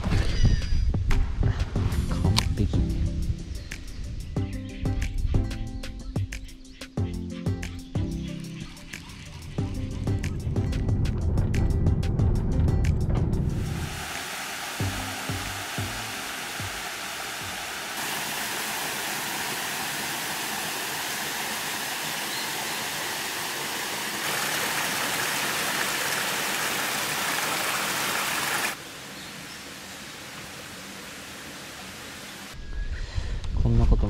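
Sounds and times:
waterfall rushing: 13.6 - 32.6.

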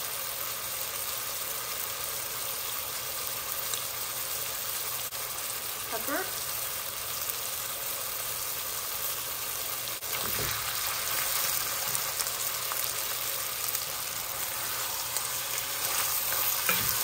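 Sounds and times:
meat sizzling in a pot: 0.0 - 17.0
wooden spoon stirring: 14.4 - 17.0.

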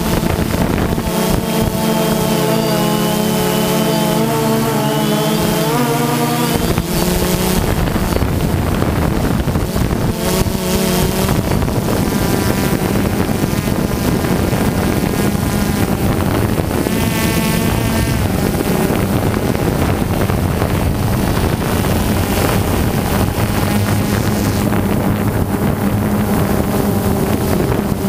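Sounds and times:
drone motors whining: 0.0 - 28.0
wind buffeting microphone: 0.0 - 28.0.

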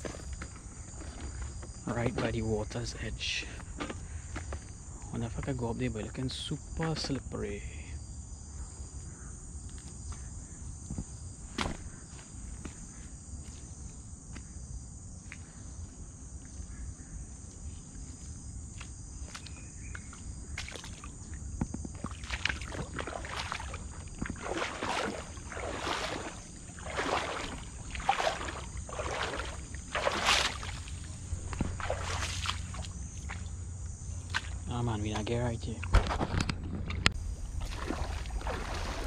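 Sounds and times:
high drone of insects: 0.0 - 39.0
footsteps on muddy stony ground: 18.0 - 33.6, 34.2 - 34.7, 35.9 - 39.0.

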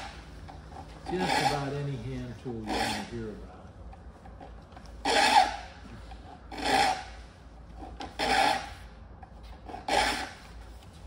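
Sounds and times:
file stroking saw teeth: 0.7 - 2.0, 2.6 - 3.2.

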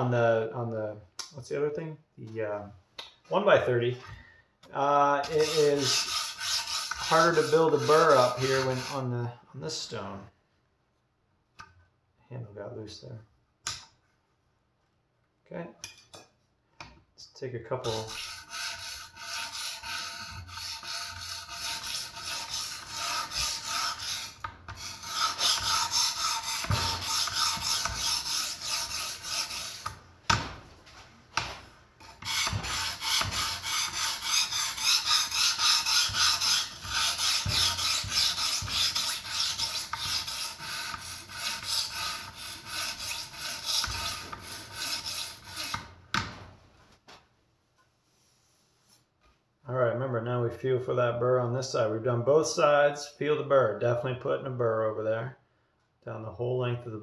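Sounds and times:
sharpening stone rasping on knife: 5.2 - 9.0, 17.9 - 30.0, 32.0 - 45.8.

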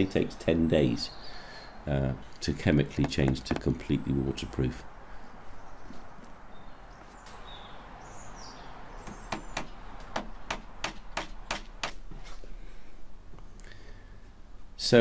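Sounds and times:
sharp taps on wooden dowel: 3.0 - 3.8, 9.0 - 12.0.

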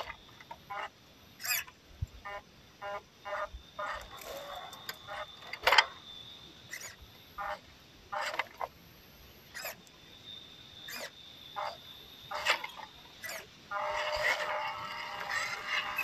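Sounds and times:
electric motor whirring: 3.8 - 5.6, 12.3 - 16.0.

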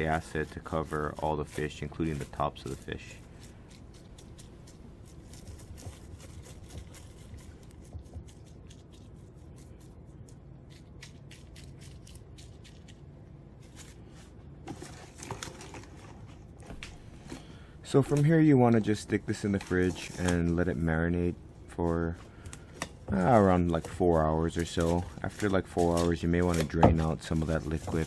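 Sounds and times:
low steady hum: 0.0 - 28.0
plastic cling wrap crinkling: 22.3 - 28.0.

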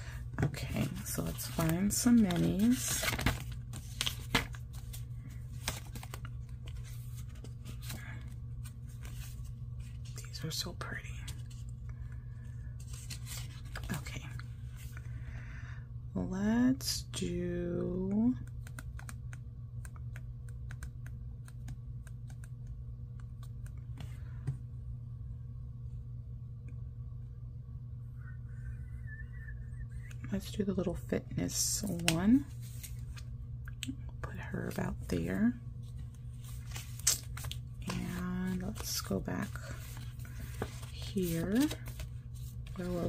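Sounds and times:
low hum: 0.0 - 43.0
paper pages rustling: 0.4 - 10.4, 12.8 - 14.9, 31.8 - 33.3, 34.7 - 43.0.

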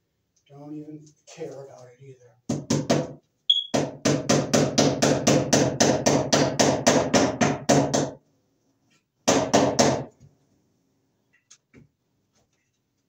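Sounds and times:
hammering on wooden joist: 2.5 - 8.2, 9.2 - 10.1.

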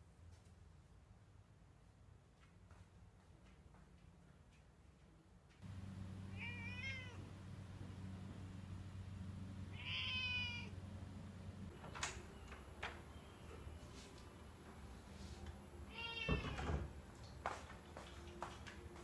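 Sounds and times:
cat meowing: 6.3 - 7.3, 9.7 - 10.8, 15.9 - 16.7.

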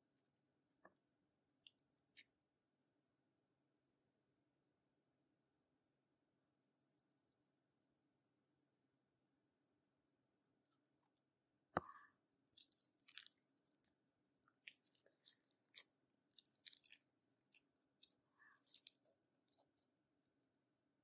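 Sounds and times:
sticky slime crackles: 12.6 - 19.8.

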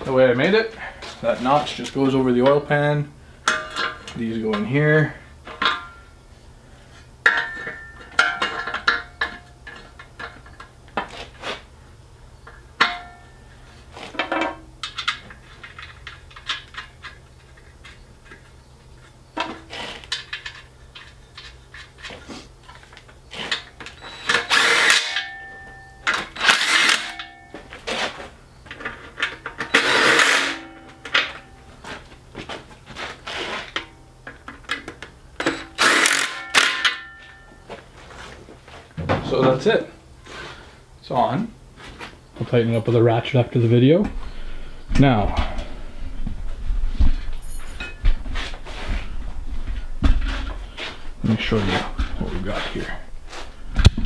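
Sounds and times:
metal clinks and knocks: 47.1 - 48.3.

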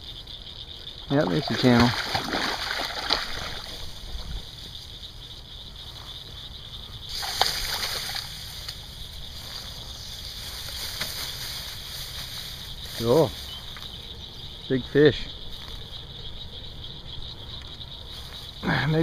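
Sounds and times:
splashing at water's edge: 1.2 - 3.9, 7.1 - 8.8
grass rustling: 1.2 - 19.0.

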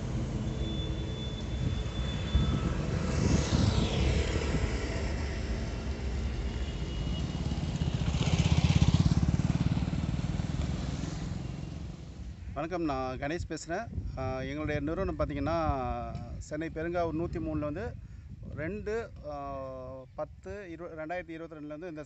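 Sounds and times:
loud engine passing close: 0.0 - 12.3
vehicles passing on road: 0.0 - 12.8
steady traffic rumble: 0.0 - 22.0.

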